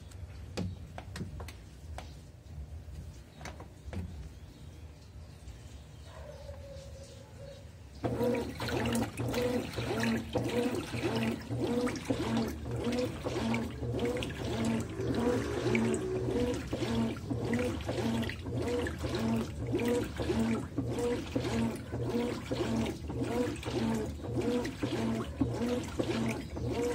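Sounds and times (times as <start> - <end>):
drive motor hum: 8.0 - 26.9
water sloshing in washing machine: 8.0 - 26.9.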